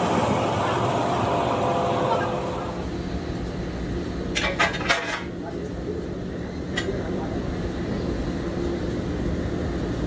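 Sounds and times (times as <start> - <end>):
machinery noise: 0.0 - 3.0.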